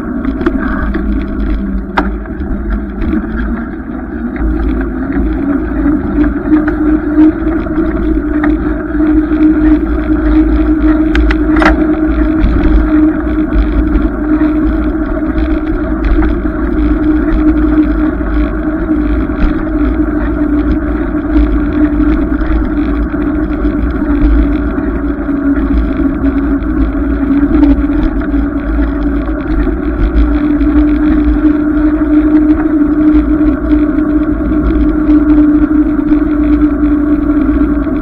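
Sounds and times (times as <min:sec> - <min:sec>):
steady humming drone: 0:00.0 - 0:38.0
wind rumbling on microphone: 0:00.0 - 0:38.0.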